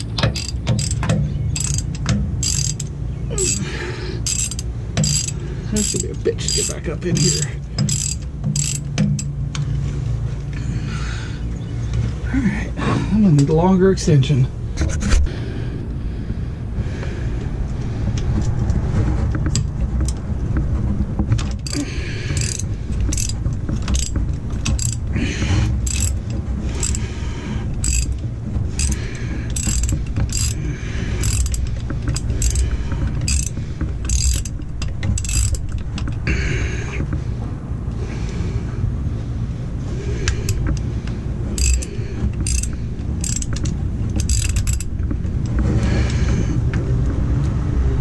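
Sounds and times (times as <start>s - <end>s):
socket ratchet clicking: 0.0s - 3.6s, 4.2s - 9.3s, 21.6s - 25.1s, 25.8s - 26.2s, 26.8s - 27.0s, 27.8s - 28.2s, 28.8s - 30.6s, 31.2s - 32.6s, 33.2s - 36.2s, 41.6s - 45.0s
low rumble: 0.0s - 48.0s.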